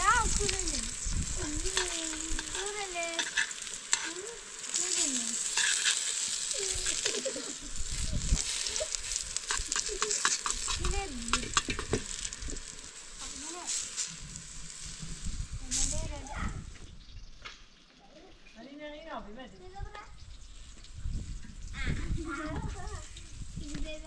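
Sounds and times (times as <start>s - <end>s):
crackling hiss: 0.0s - 24.0s.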